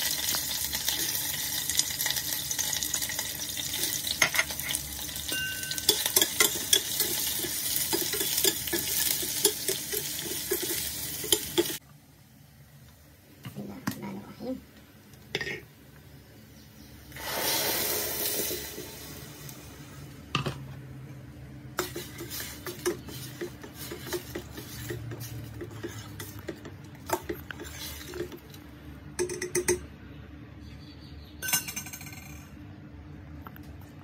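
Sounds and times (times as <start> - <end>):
metal spoon scraping a pot: 5.8 - 11.8, 21.8 - 28.4
loud hiss: 17.1 - 19.8.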